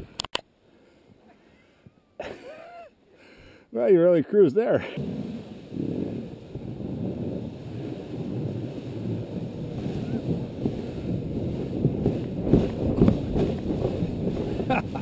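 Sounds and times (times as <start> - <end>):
sled scraping over snow: 4.2 - 15.0
wind buffeting microphone: 5.0 - 15.0.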